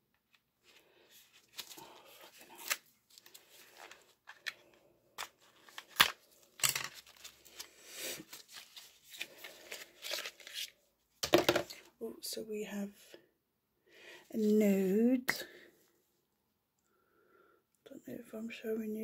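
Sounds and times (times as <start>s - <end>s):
cardboard packaging rustling: 0.6s - 10.8s.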